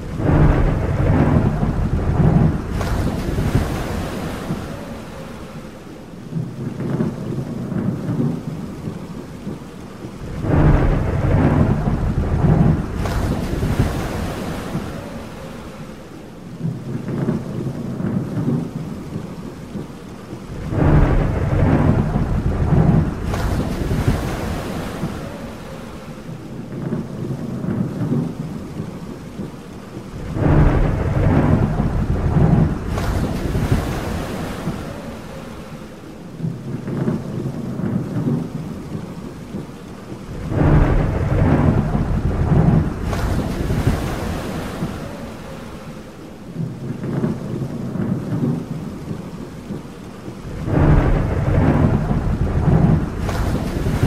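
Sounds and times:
thunder crack: 0.0s - 5.5s, 10.2s - 15.8s, 20.4s - 26.0s, 30.1s - 35.6s, 40.2s - 46.0s, 50.2s - 54.0s
rain hissing: 0.0s - 54.0s
rolling thunder: 0.0s - 54.0s.

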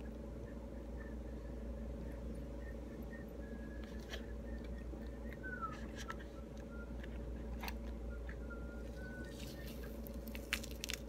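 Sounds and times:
low hum: 0.0s - 11.0s
fruit peel crackling: 7.5s - 11.0s.

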